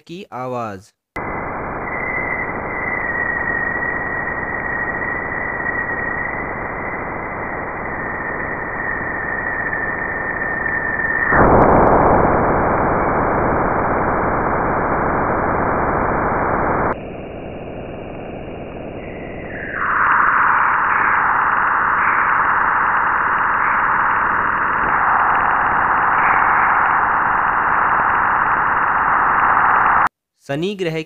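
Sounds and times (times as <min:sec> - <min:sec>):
thin high whistle: 0:18.4 - 0:26.3.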